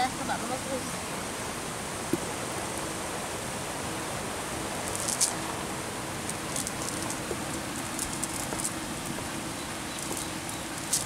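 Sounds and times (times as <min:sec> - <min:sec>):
steady outdoor hiss: 0:00.0 - 0:11.0
light crackles: 0:04.8 - 0:05.5, 0:06.2 - 0:09.4, 0:10.0 - 0:11.0.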